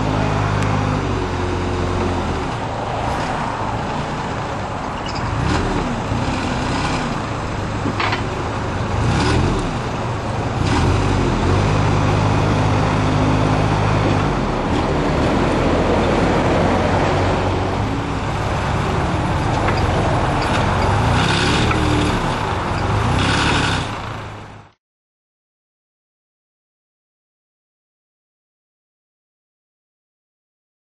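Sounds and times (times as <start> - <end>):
diesel engine revving: 0.0 - 24.8.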